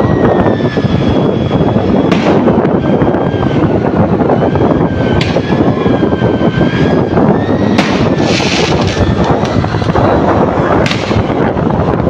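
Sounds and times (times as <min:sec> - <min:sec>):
motorbike engine whine: 0:00.0 - 0:12.0
wind rushing over microphone: 0:00.0 - 0:12.0
sharp cracks: 0:07.7 - 0:10.0, 0:10.8 - 0:11.3.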